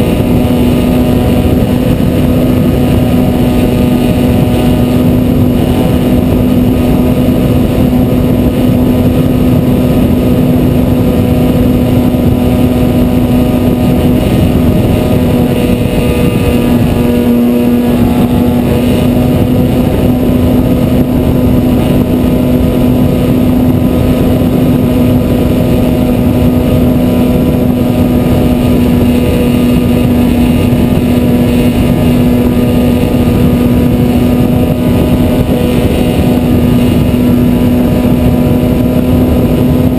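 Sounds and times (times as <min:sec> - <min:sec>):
model plane motor humming: 0:00.0 - 0:39.9
wind rushing: 0:00.0 - 0:39.9.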